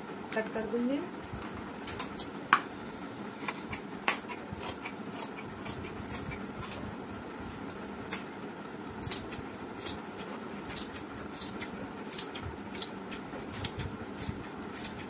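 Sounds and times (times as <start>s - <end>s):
scissors snipping fabric: 9.0s - 15.0s.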